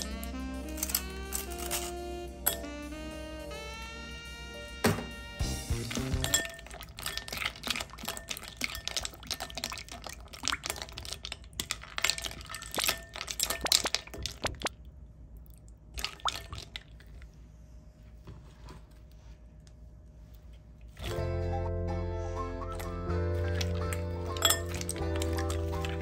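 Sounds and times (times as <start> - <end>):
ice cubes clinking in glass bowl: 0.0 - 2.7, 5.8 - 14.6, 23.4 - 26.0
liquid sloshing: 5.8 - 17.4, 22.7 - 26.0.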